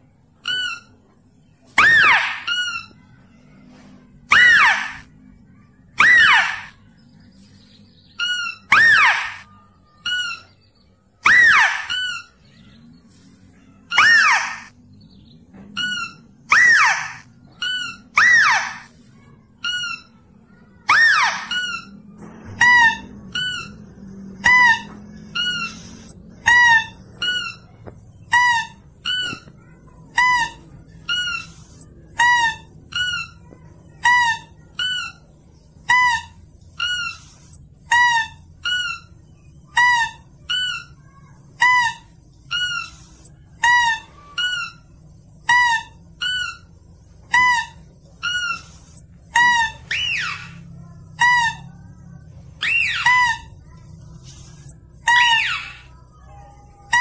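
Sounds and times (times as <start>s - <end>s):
shrill squeaking lure call: 1.8s - 3.0s, 4.3s - 5.1s, 6.0s - 6.8s, 8.2s - 10.5s, 11.2s - 12.4s, 13.9s - 14.7s, 15.8s - 18.9s, 20.8s - 21.9s, 24.4s - 27.7s, 41.6s - 51.8s, 52.6s - 53.5s, 55.0s - 57.0s
rising squeals: 15.7s - 33.6s.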